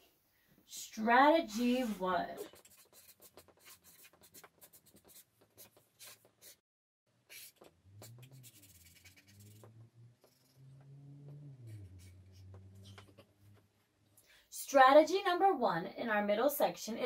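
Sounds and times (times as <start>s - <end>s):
marker writing on paper: 1.6s - 6.6s, 7.3s - 10.6s, 11.8s - 13.6s
faint wavering low hum: 7.7s - 14.2s.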